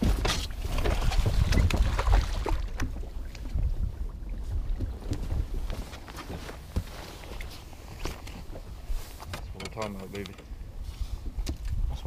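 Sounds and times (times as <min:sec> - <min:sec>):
water splashing: 0:00.0 - 0:09.1
wind rumbling on microphone: 0:00.0 - 0:12.0.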